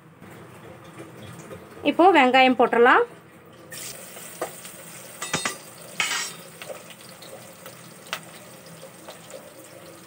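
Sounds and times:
onions sizzling in hot oil: 3.7 - 10.0.

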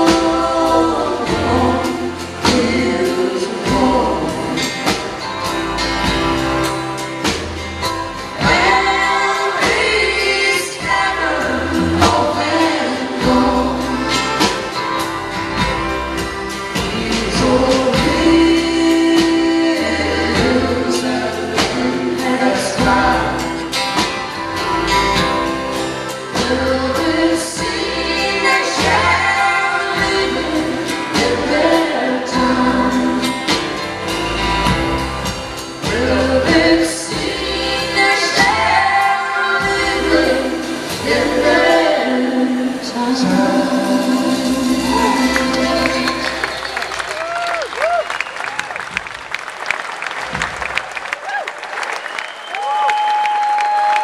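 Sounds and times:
voices singing in harmony: 0.0 - 5.5, 8.2 - 15.1, 16.2 - 34.5, 35.5 - 47.4
acoustic guitars: 0.0 - 49.5.

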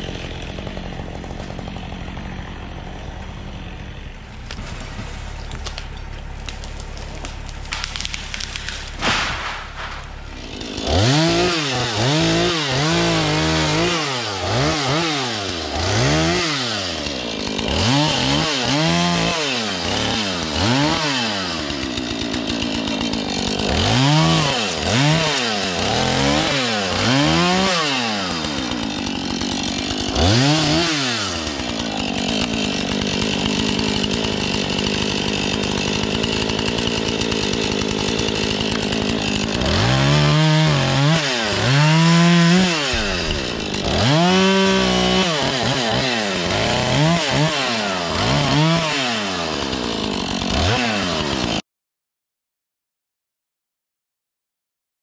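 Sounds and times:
chainsaw revving: 0.0 - 51.6.

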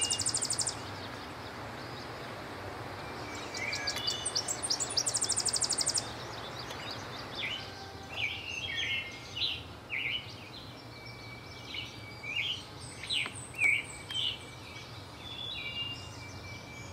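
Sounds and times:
rapid high bird trill: 0.0 - 1.0, 3.1 - 6.2
bird singing short phrases: 0.0 - 2.2, 3.0 - 16.9.

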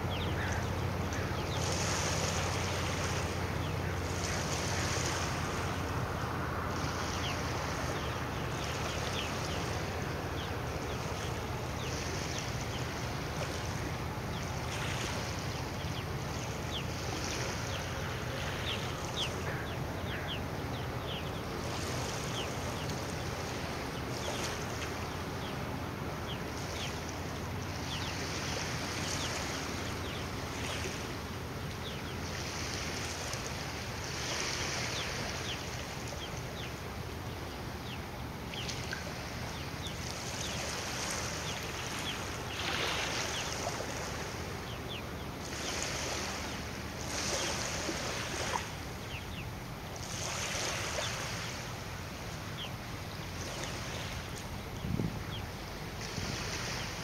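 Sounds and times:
water lapping in small waves: 0.0 - 57.0
wind hitting microphone: 54.7 - 55.4.

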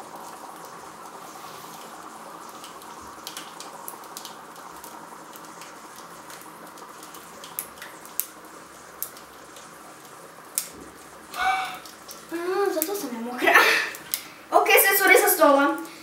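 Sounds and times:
dry ice bubbling and fizzing: 0.0 - 16.0
sharp pops and clicks: 2.6 - 8.4, 10.5 - 10.8.

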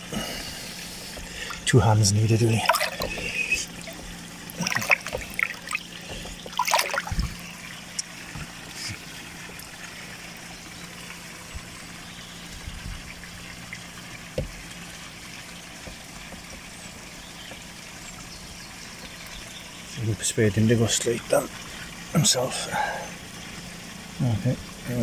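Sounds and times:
low hum: 0.0 - 15.2
water splashing in fish bowl: 0.0 - 18.2
water trickling: 0.0 - 25.0.

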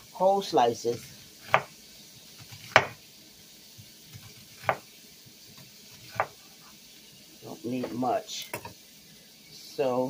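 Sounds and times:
livers sizzling in oil: 0.0 - 10.0
knife striking cutting board: 1.4 - 1.7, 2.5 - 3.0, 4.2 - 4.8, 6.1 - 6.4.

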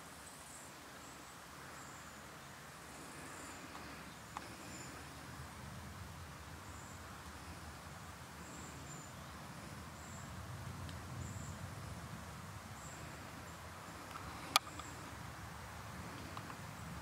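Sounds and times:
low outdoor rumble: 1.3 - 17.0
grasshopper chirping: 2.9 - 5.6, 12.8 - 16.7.

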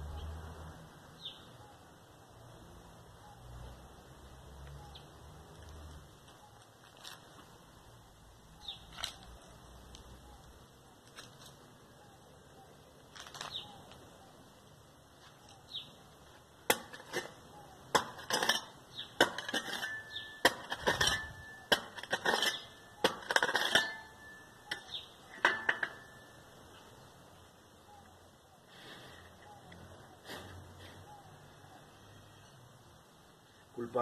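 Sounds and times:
hand tool digging stony dirt: 15.2 - 26.3.

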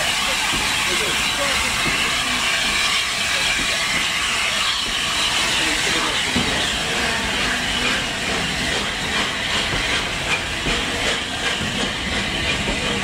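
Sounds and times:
steam locomotive hissing steam: 0.0 - 13.0.

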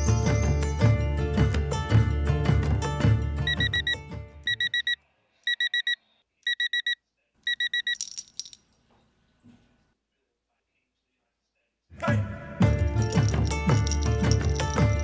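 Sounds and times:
music: 0.0 - 4.7, 11.9 - 15.0
digital alarm clock beeping: 3.5 - 8.0.

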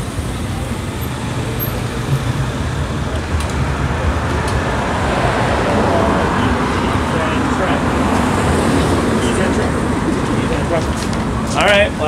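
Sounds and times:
passing cars road noise: 0.0 - 12.0.

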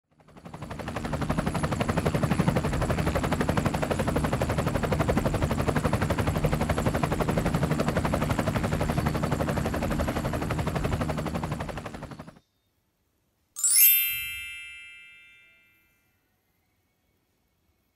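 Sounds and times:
helicopter rotor chopping: 0.1 - 12.4.

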